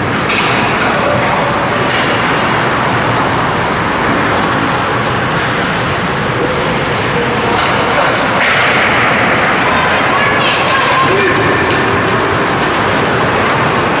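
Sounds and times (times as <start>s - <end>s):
steady rushing noise: 0.0s - 14.0s
hockey sticks clacking: 7.5s - 14.0s.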